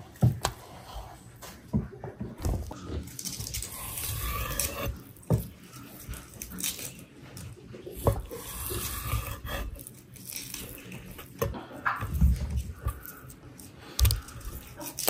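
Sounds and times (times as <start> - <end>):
knife slicing raw meat: 3.6 - 5.1, 8.0 - 9.9.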